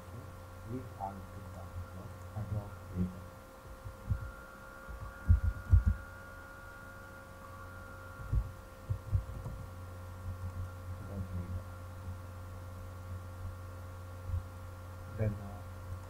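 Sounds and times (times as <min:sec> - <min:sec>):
electrical hum with faint whine: 0:00.0 - 0:16.0
dull low thumps of keystrokes: 0:01.5 - 0:06.1, 0:08.2 - 0:10.8.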